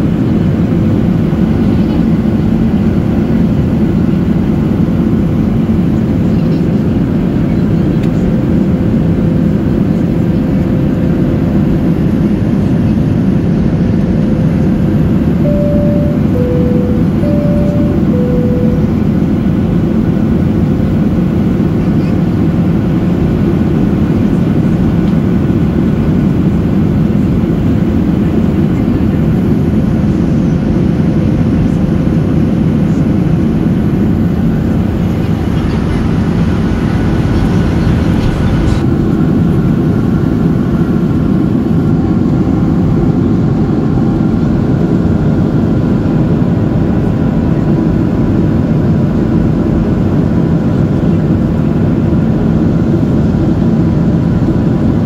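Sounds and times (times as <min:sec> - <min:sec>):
airplane cabin rumble: 0:00.0 - 0:55.0
two-note chime: 0:15.4 - 0:19.1.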